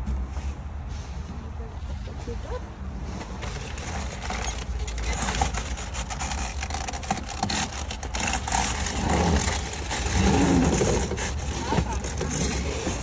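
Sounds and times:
cardboard box scraping and knocking: 3.2s - 13.0s.

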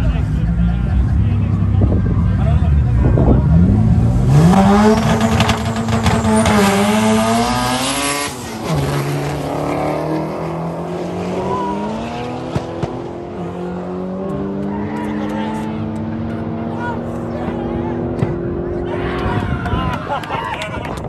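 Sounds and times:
car engine revving high: 0.5s - 18.9s.

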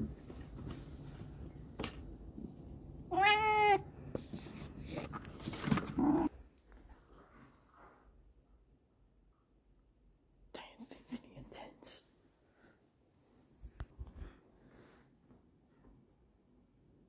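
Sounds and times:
cat meowing: 3.1s - 3.9s, 5.9s - 6.3s.

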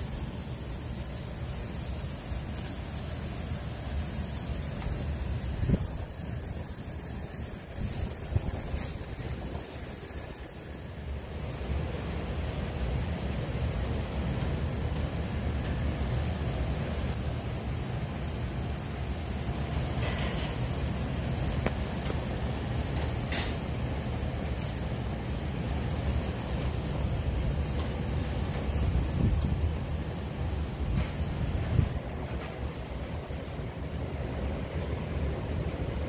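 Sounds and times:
steak sizzling on a grill: 0.0s - 36.0s
wind on microphone: 5.4s - 6.2s, 7.4s - 10.4s, 28.9s - 29.7s, 30.8s - 32.0s.

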